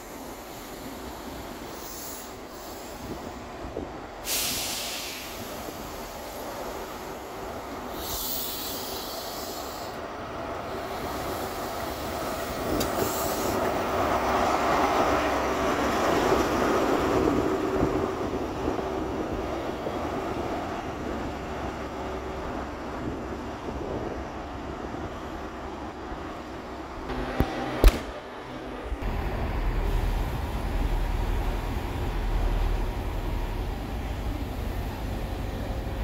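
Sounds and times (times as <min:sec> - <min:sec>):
train wheels rumbling and squealing: 0:00.0 - 0:26.6
diesel train engine: 0:00.0 - 0:36.0
brief hiss: 0:04.2 - 0:05.8.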